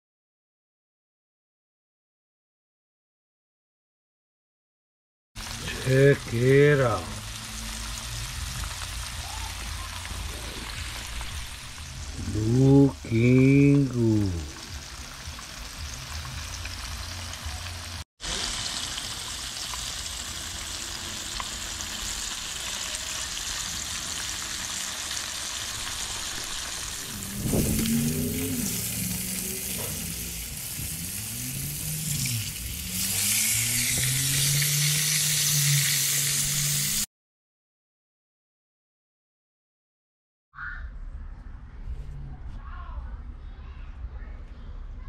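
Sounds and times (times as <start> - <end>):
fish frying in hot oil: 5.4 - 37.1.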